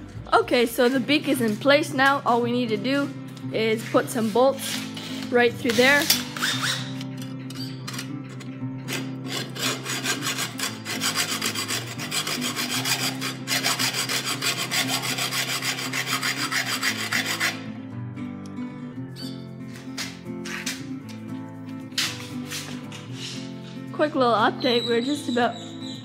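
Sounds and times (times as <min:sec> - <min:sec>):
hacksaw cutting metal bolt: 0:04.6 - 0:17.6.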